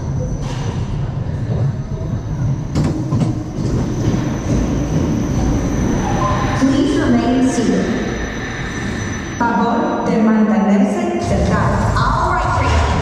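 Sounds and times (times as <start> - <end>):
roller coaster wheels rumbling on track: 0.0 - 9.7.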